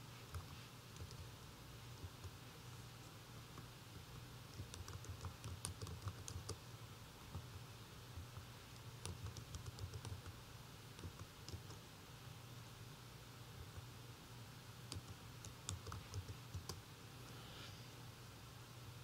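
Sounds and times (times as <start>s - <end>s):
faint low hum: 0.0s - 19.0s
computer keyboard typing: 0.3s - 1.3s, 4.5s - 6.6s, 8.2s - 10.4s, 11.0s - 11.8s, 14.9s - 16.8s.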